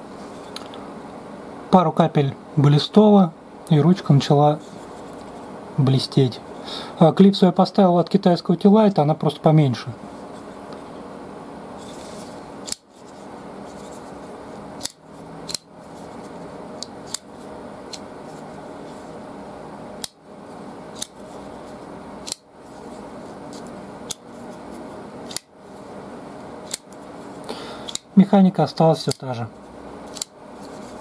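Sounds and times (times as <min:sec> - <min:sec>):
folding knife blade clicking: 0:30.1 - 0:30.3.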